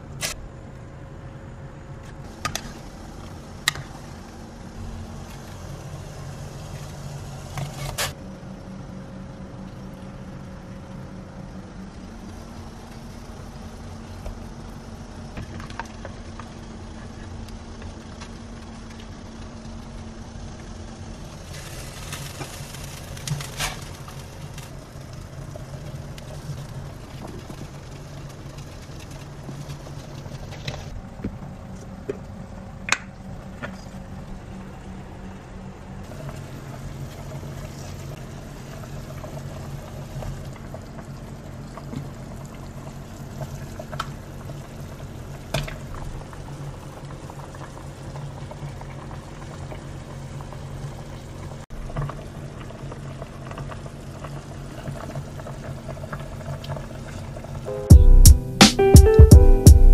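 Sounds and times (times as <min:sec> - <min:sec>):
low hum: 0:00.0 - 0:45.4, 0:57.5 - 0:59.9
soup bubbling in a pot: 0:36.1 - 0:57.6.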